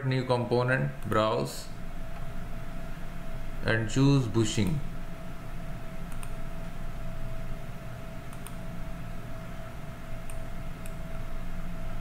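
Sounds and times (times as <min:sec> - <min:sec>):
background hum: 0:00.0 - 0:12.0
computer mouse clicks: 0:06.1 - 0:06.4, 0:08.3 - 0:08.6, 0:10.2 - 0:11.1.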